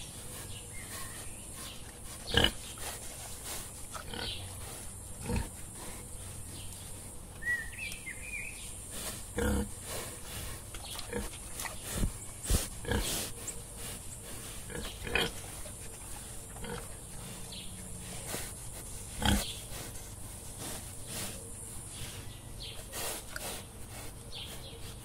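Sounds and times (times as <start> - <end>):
boar grunting: 0.0 - 6.5, 8.9 - 19.5.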